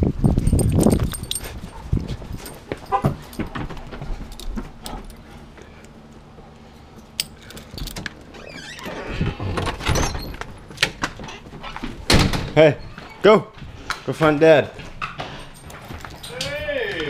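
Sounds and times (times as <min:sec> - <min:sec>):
metallic jingling and clicking: 0:00.1 - 0:05.5, 0:07.0 - 0:08.3, 0:15.3 - 0:16.6
door latch and handle rattling: 0:07.2 - 0:11.4.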